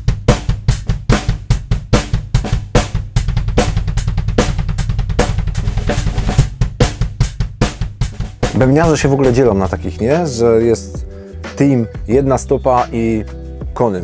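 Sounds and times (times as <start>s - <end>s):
snare and tom hits: 0.0s - 9.8s
double-pedal bass drum strokes: 0.0s - 10.2s.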